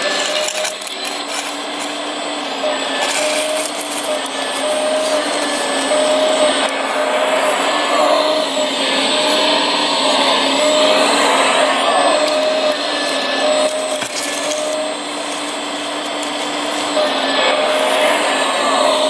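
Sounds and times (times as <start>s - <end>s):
hydraulic pump motor whine: 0.0s - 19.0s
short higher whines: 2.5s - 15.0s.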